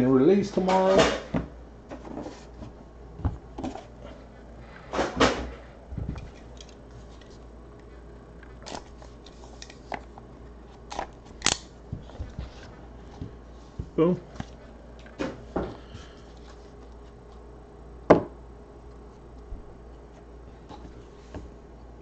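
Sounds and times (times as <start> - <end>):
blade slitting tape: 10.9 - 11.7
cardboard knocks and rustles: 11.9 - 14.0.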